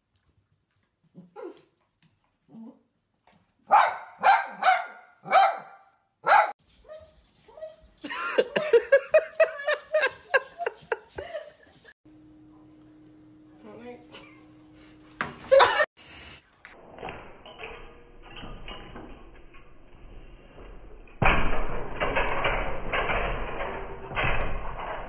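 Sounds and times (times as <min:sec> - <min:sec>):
high yapping barks: 0:03.7 - 0:06.6
small dog barking: 0:03.7 - 0:06.6.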